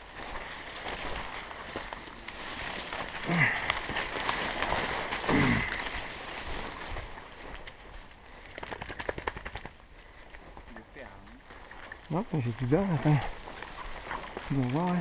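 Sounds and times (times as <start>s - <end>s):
leaf litter crunching: 0.0s - 8.1s, 11.4s - 15.0s
branches rustling: 0.0s - 15.0s
twigs cracking underfoot: 0.0s - 15.0s
low grunts: 3.2s - 3.7s, 5.2s - 5.9s.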